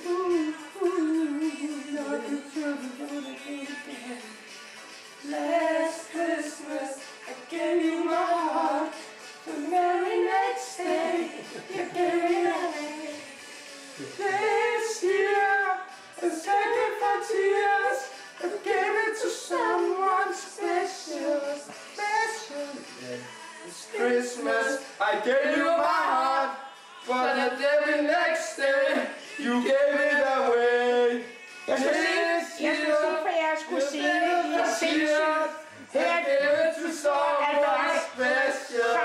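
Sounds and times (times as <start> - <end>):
woman and man singing: 0.0 - 4.6, 5.2 - 39.0.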